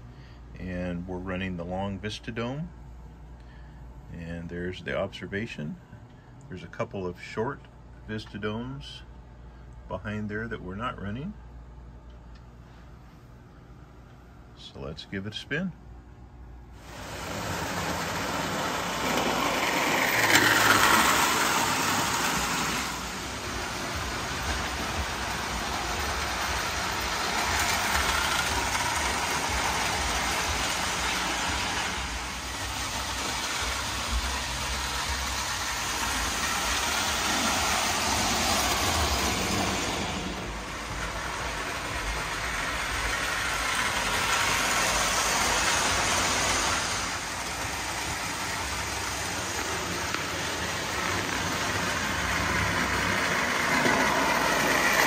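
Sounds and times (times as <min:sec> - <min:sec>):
toy train motor whirring: 0:16.8 - 0:55.0
wheels rumbling on track: 0:16.8 - 0:55.0.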